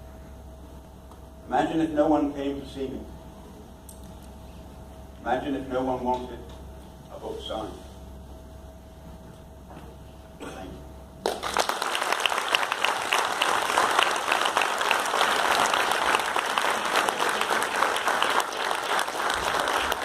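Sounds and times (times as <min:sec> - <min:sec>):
audience applauding: 0:11.2 - 0:20.0.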